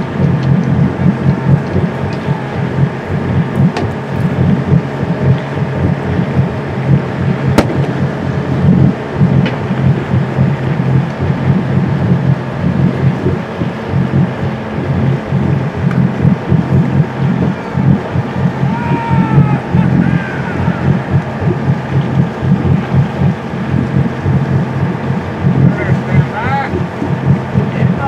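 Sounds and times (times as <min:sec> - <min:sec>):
steady low hum: 0:00.0 - 0:28.0
wind buffeting microphone: 0:00.0 - 0:28.0.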